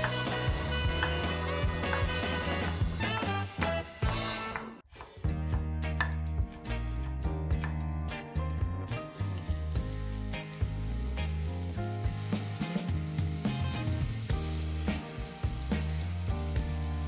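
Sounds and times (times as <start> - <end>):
background music with bass: 0.0 - 17.0
onion sizzling in hot oil: 8.8 - 17.0.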